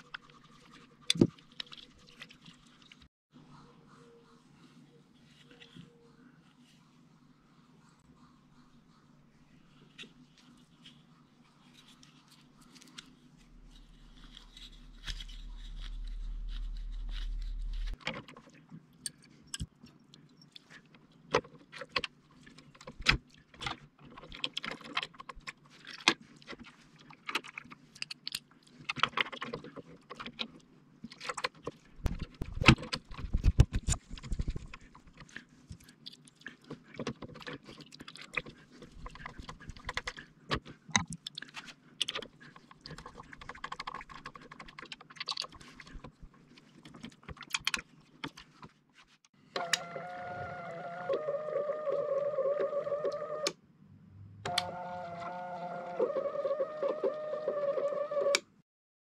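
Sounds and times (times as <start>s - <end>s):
low hum: 3.3s - 18.0s
plastic parts clicking and scraping: 11.7s - 48.8s.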